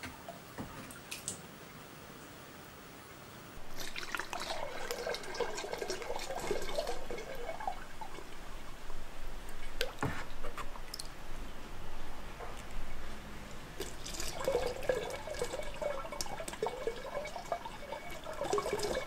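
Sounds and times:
liquid clay glugging through funnel: 3.6 - 11.2, 13.8 - 19.0.

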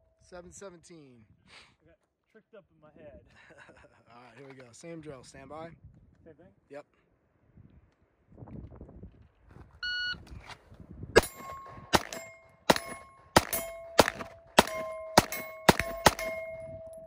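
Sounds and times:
shot timer beep: 9.8 - 10.2
pistol shots: 11.2 - 16.9
steel target ringing: 11.2 - 17.0.

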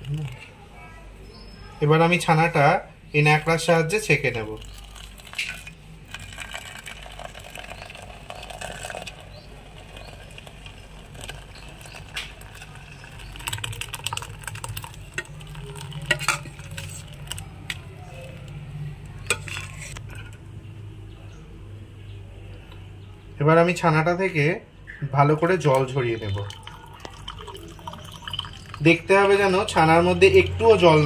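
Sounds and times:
steel vessels and spoon clinking: 4.5 - 20.4.

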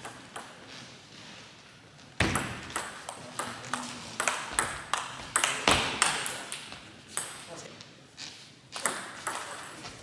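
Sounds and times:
ping pong ball clicking off bats: 0.0 - 0.6, 2.2 - 7.4, 8.8 - 9.7.

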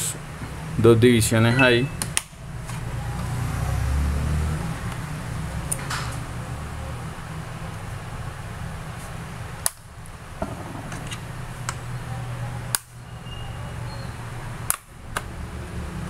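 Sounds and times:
sharp plastic clicks: 14.7 - 15.3.

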